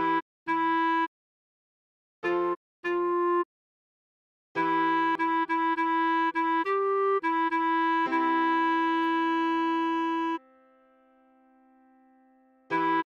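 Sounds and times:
clarinet playing: 0.0 - 1.1, 2.2 - 3.5, 4.6 - 10.6, 12.7 - 13.0.

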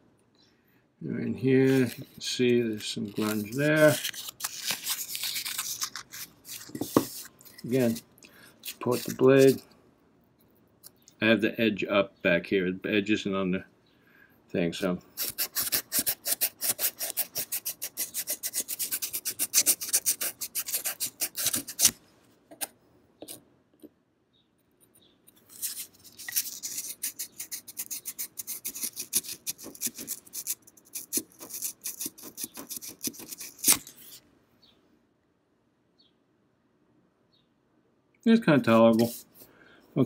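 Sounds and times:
sandpaper rubbing on steel: 3.0 - 8.0, 8.7 - 9.6, 15.2 - 22.0, 25.5 - 34.2.

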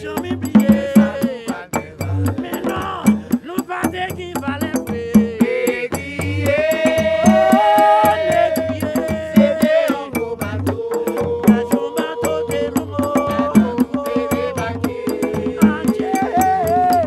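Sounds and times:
hand drums beating: 0.0 - 17.0
sharp percussion ticks: 0.0 - 17.0
voices singing long notes: 5.4 - 17.0.

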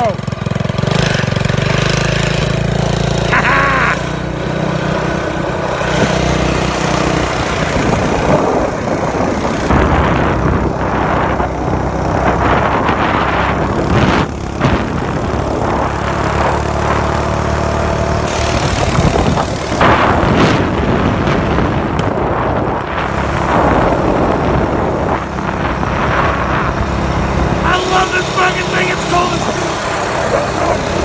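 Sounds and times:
small engine running: 0.0 - 31.0
wind buffeting microphone: 5.0 - 28.4.

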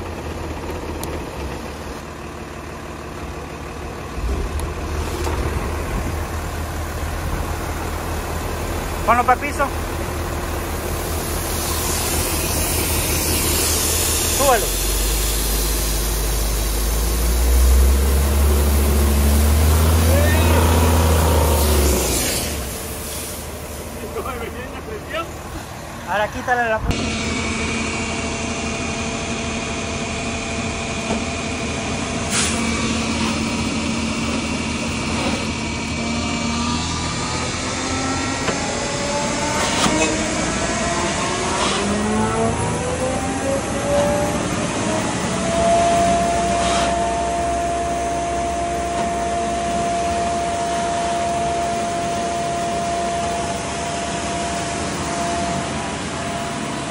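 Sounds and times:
high whine: 3.4 - 56.9
brief hiss: 32.3 - 32.6.

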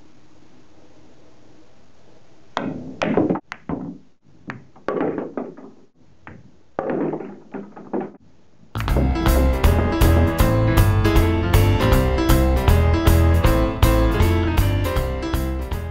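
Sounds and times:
balls knocking into pockets: 2.6 - 8.2
pool balls clacking: 2.6 - 8.2, 8.8 - 15.1
piano music: 8.8 - 15.9.

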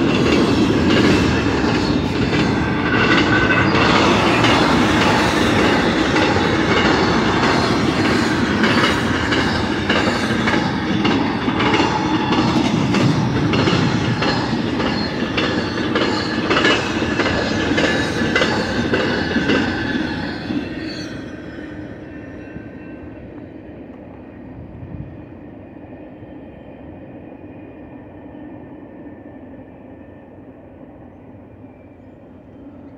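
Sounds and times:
freight train wheels clattering: 0.0 - 24.5.

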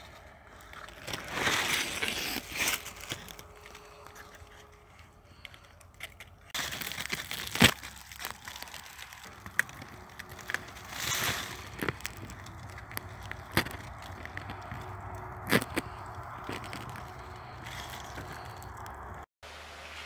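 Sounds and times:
plant leaves rustling: 0.0 - 20.0.

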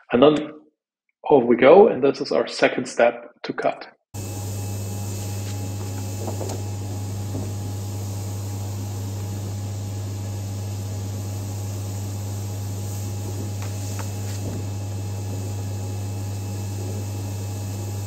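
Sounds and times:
vacuum blower humming: 4.2 - 18.0.

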